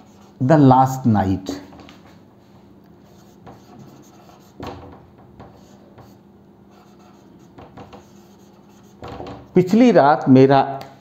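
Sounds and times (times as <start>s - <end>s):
marker squeaking on whiteboard: 3.0s - 9.6s.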